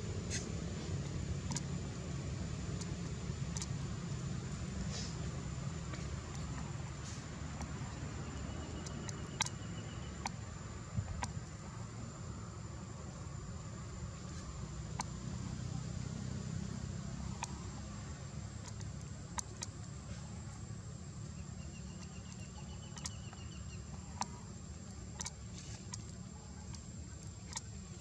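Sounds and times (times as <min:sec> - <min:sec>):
rapid chirps: 0:00.2 - 0:12.4, 0:13.7 - 0:28.0
sharp clicks: 0:02.8 - 0:03.7, 0:08.7 - 0:10.4, 0:18.6 - 0:20.0.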